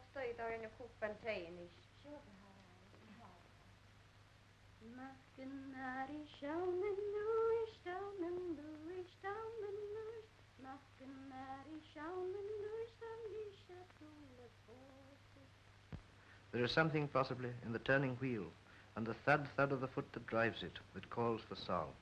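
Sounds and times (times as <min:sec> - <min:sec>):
woman singing unaccompanied: 0:00.0 - 0:03.5, 0:04.8 - 0:15.6.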